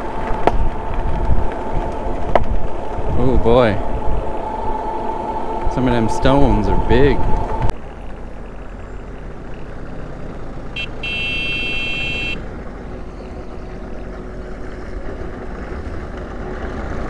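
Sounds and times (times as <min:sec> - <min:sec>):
high brake squeal: 0:00.0 - 0:07.7
wind noise: 0:00.0 - 0:07.8.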